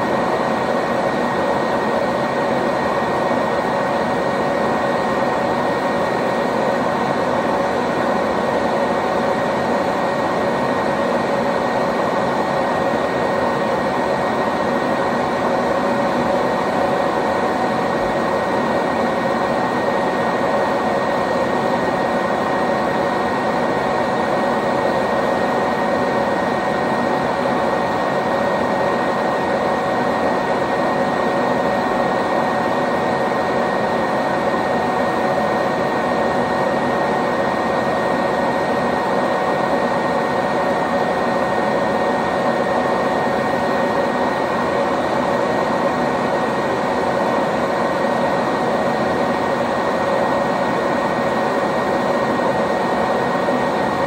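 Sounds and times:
vacuum cleaner running: 0:00.0 - 0:54.0.

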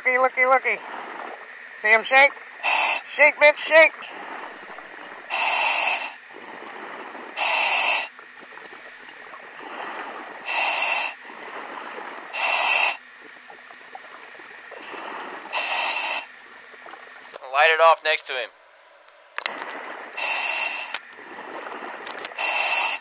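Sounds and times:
diver breathing through regulator: 0:02.6 - 0:03.1, 0:04.1 - 0:13.0, 0:14.7 - 0:16.4, 0:19.5 - 0:23.0
rush of air: 0:19.5 - 0:23.0.

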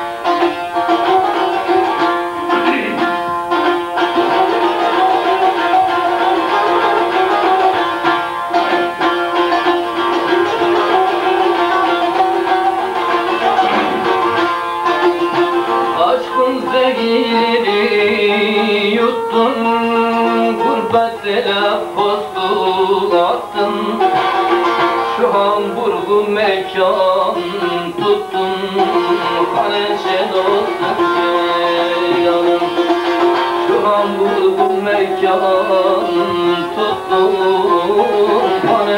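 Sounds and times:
droning strings: 0:00.0 - 0:22.5
plucked saz folk melody: 0:00.0 - 0:38.9.

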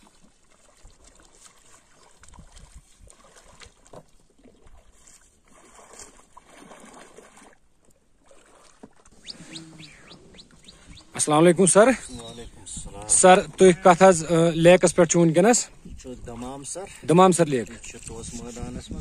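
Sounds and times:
oars splashing in water: 0:00.0 - 0:14.2.

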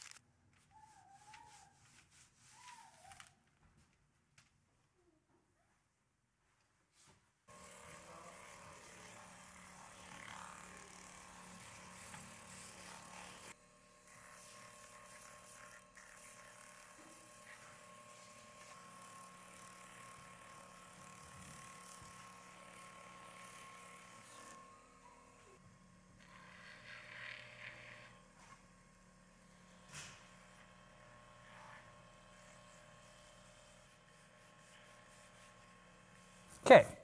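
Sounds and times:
sanding drum motor hum: 0:07.5 - 0:36.6.

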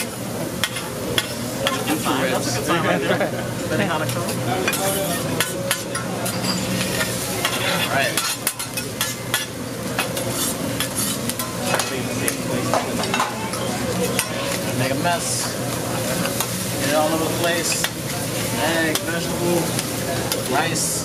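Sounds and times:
rice sizzling on griddle: 0:00.0 - 0:21.0
metal spatula scraping steel: 0:10.1 - 0:11.3.

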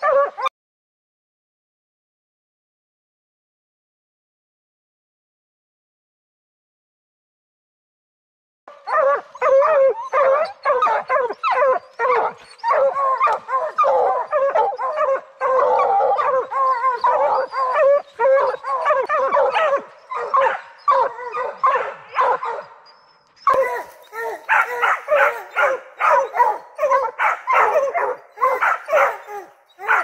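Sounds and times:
hounds barking: 0:00.0 - 0:00.5, 0:08.7 - 0:22.8, 0:23.5 - 0:30.0.

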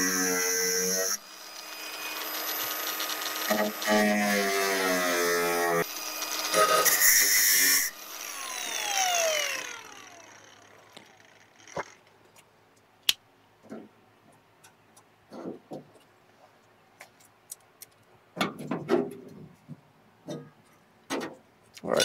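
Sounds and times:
grinder whine spinning down: 0:01.2 - 0:04.5, 0:05.6 - 0:12.1.

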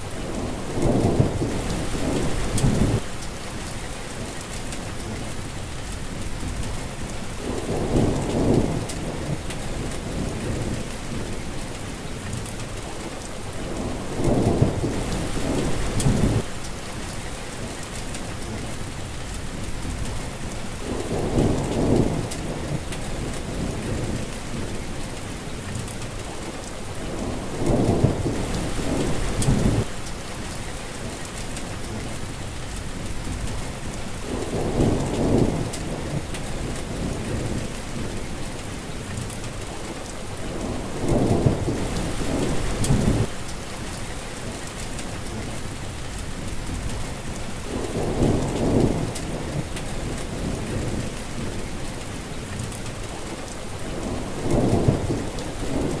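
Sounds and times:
steady rain falling: 0:00.0 - 0:56.0
thunder rumbling: 0:00.3 - 0:03.1, 0:13.7 - 0:16.5, 0:27.2 - 0:29.9, 0:40.5 - 0:43.3, 0:53.9 - 0:56.0.

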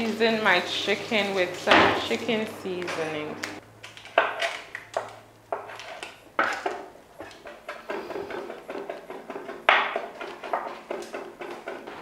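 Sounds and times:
dishes and utensils clattering: 0:05.6 - 0:12.0.

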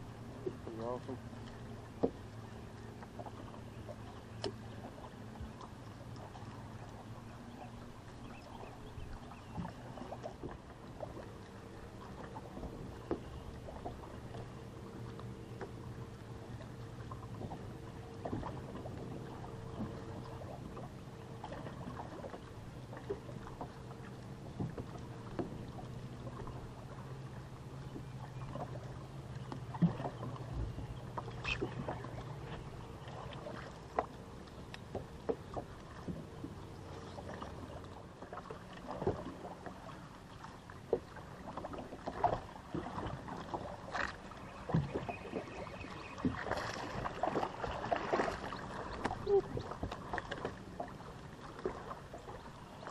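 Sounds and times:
electric boat motor humming: 0:00.0 - 0:52.9
knocks on a boat: 0:02.0 - 0:02.2.

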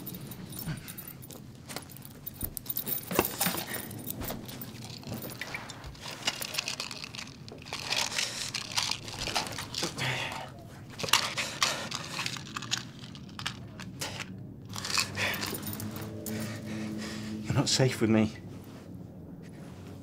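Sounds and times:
rustling handling noises: 0:00.0 - 0:16.9, 0:18.3 - 0:20.0.

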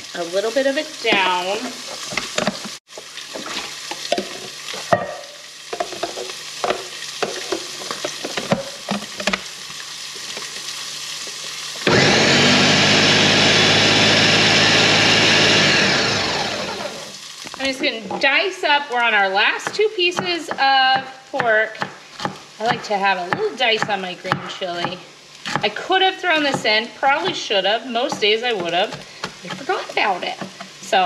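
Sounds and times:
pork sizzling in a pan: 0:00.0 - 0:11.9, 0:16.5 - 0:31.0
food processor motor blending: 0:11.8 - 0:17.2.

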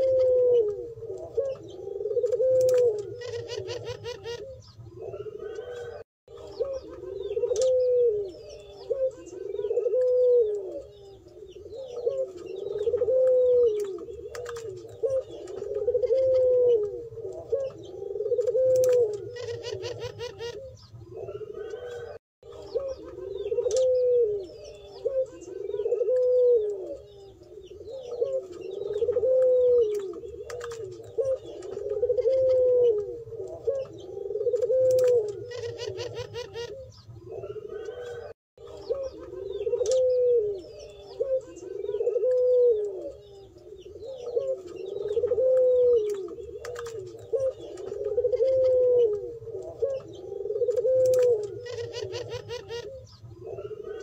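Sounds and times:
doves cooing: 0:00.0 - 0:54.0
small birds chirping: 0:00.0 - 0:54.0.

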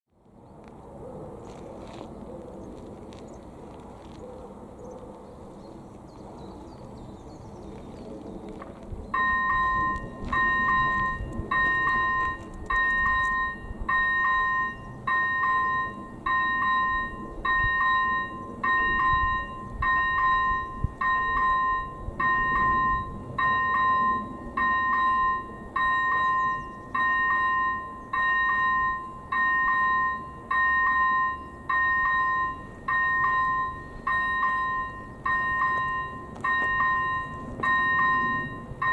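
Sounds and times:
level crossing two-tone bell: 0:09.2 - 0:38.9.

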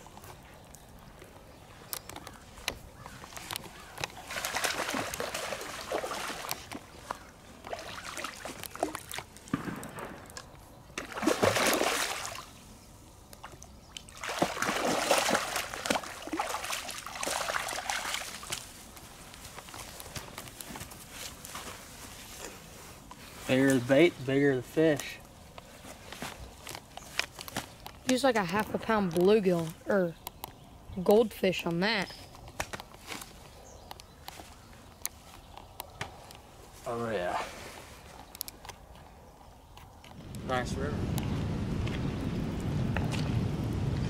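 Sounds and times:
fish splashing in water: 0:03.7 - 0:09.4, 0:11.0 - 0:12.6, 0:13.4 - 0:18.6.

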